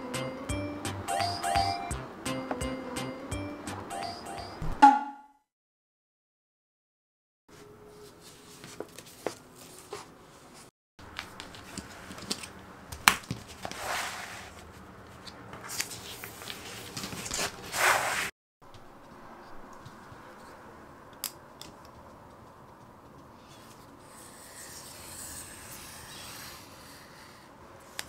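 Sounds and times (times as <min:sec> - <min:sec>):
wallpaper crinkling: 0:08.0 - 0:18.3.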